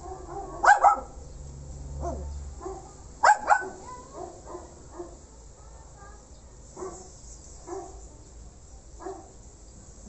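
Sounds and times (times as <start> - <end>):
dog barking: 0.0 - 1.2, 2.0 - 5.2, 6.8 - 8.0, 9.0 - 9.4.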